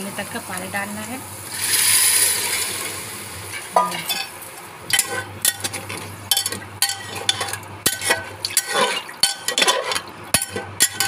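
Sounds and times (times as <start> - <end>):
water sizzling in hot pot: 0.0 - 11.0
spoon scraping a pot: 4.9 - 11.0.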